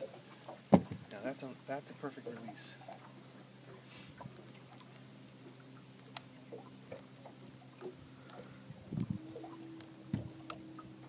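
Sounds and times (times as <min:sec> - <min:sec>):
water splashing against boat hull: 0:00.0 - 0:11.0
dull thumps on boat: 0:00.7 - 0:01.1.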